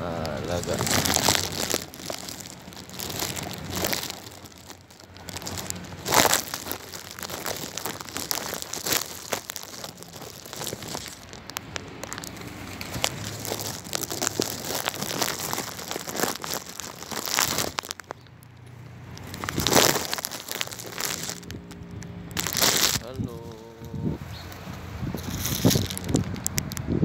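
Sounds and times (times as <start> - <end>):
pigeons rustling and clicking: 0.2 - 23.0, 24.3 - 26.9.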